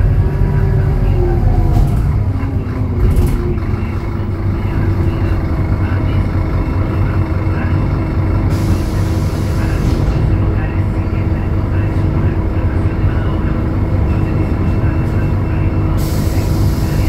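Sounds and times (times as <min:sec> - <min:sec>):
diesel bus engine running: 0:00.0 - 0:17.0
air hiss: 0:16.0 - 0:17.0.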